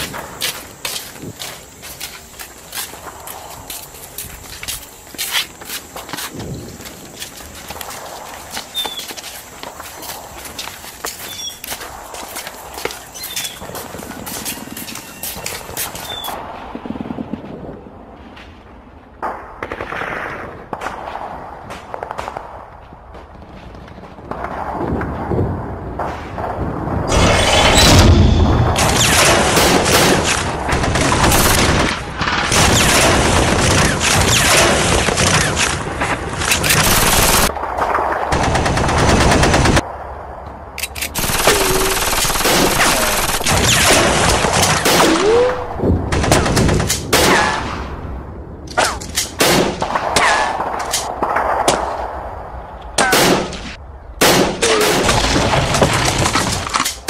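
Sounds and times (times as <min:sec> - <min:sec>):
rapid automatic gunfire: 0:28.8 - 0:35.8, 0:36.4 - 0:37.5, 0:38.3 - 0:39.8, 0:41.2 - 0:45.1.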